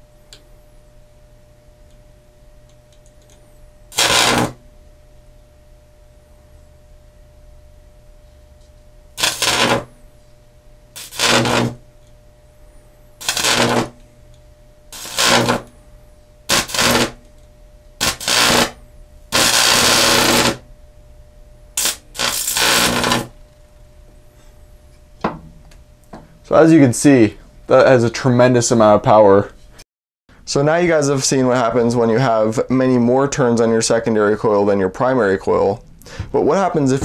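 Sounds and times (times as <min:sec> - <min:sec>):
transformer hum: 0:02.7 - 0:26.7
electric arcs crackling: 0:03.1 - 0:04.7, 0:09.1 - 0:10.1, 0:10.9 - 0:12.2, 0:13.2 - 0:14.1, 0:14.9 - 0:15.8, 0:16.4 - 0:20.7, 0:21.8 - 0:23.4.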